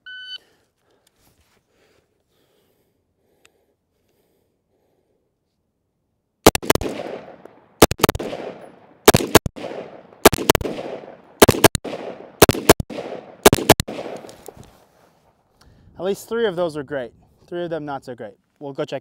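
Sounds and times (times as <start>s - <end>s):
rifle shots with echo: 6.4s - 14.5s.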